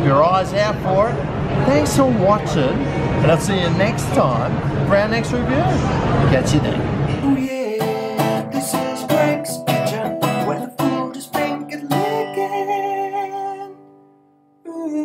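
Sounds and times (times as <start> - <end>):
acoustic guitar strumming: 7.0 - 15.0.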